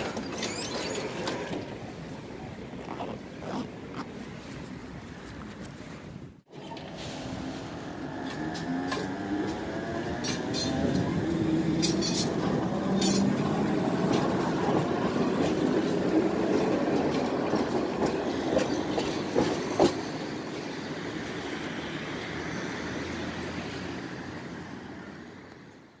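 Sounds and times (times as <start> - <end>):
wheels clicking over rail joints: 0.0 - 2.0, 8.0 - 20.4
tram wheels rumbling on rails: 0.0 - 4.0, 6.5 - 25.7.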